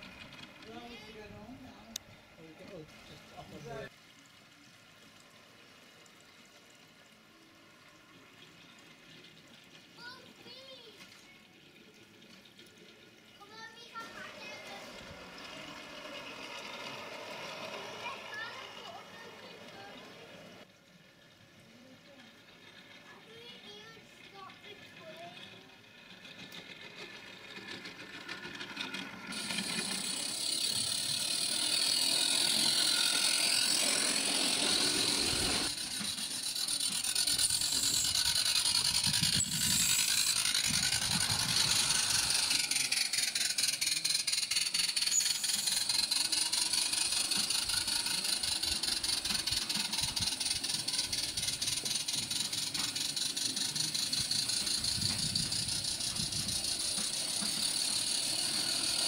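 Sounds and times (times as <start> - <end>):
model train wheels rattling: 0.0 - 2.0, 12.1 - 59.0.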